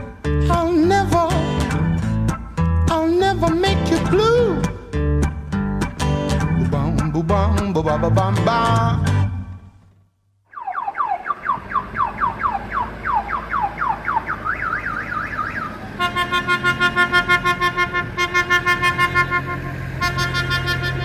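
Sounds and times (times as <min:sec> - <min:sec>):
car alarm siren: 0:10.5 - 0:18.1.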